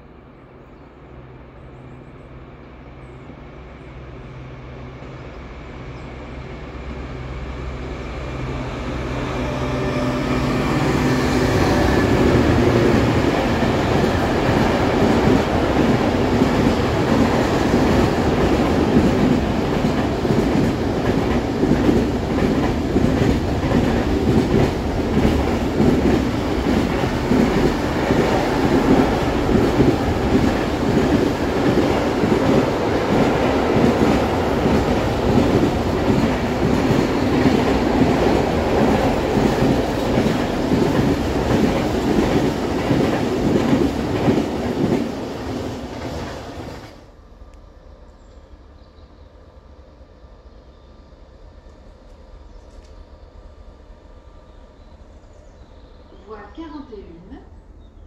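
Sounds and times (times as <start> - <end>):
freight train wheels on rails: 3.0 - 48.6.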